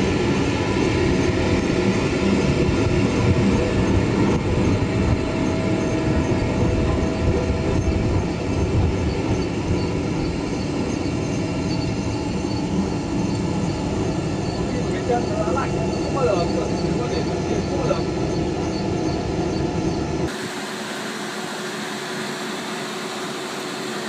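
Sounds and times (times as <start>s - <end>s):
rotating drum low rumble: 0.0s - 20.4s.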